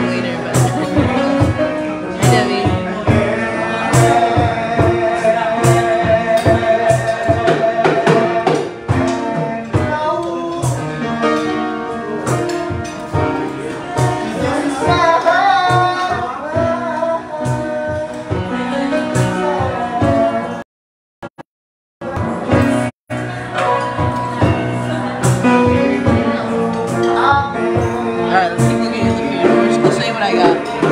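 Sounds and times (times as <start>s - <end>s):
music with steady beat: 0.0s - 20.6s, 22.0s - 30.9s
waiters singing: 0.0s - 20.6s.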